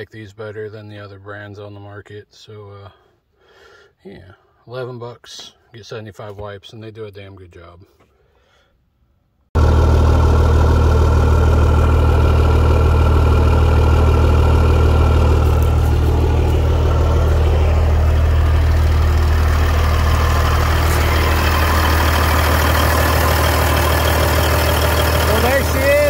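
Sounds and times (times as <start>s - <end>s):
diesel engine idling: 9.6s - 26.0s.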